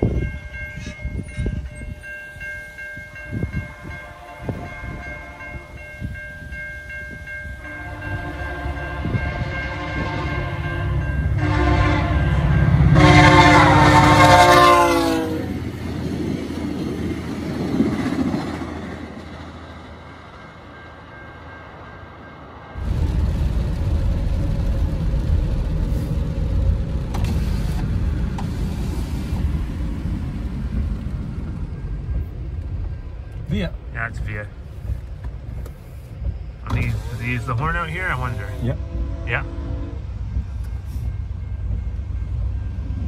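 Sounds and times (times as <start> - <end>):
train engine and wheels rumbling: 0.0 - 43.0
train horn blasts: 3.5 - 6.2, 7.6 - 15.6, 37.4 - 40.2.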